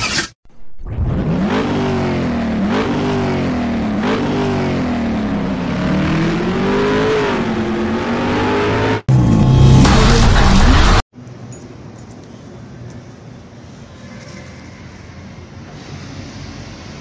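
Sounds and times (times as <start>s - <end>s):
car engine accelerating: 0.8s - 11.0s.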